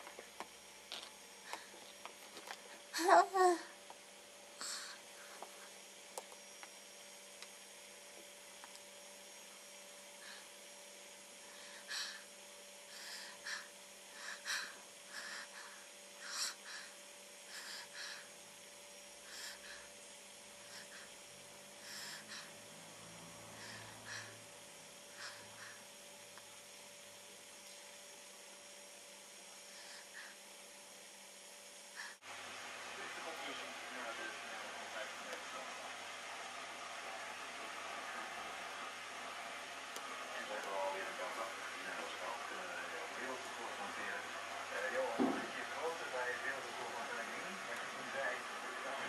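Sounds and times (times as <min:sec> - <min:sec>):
faint electrical hum: 0:00.0 - 0:49.0
baby breathing softly: 0:04.6 - 0:05.8, 0:11.4 - 0:18.4, 0:19.2 - 0:21.2, 0:21.8 - 0:22.7, 0:23.5 - 0:24.4, 0:25.1 - 0:25.9, 0:29.6 - 0:30.4.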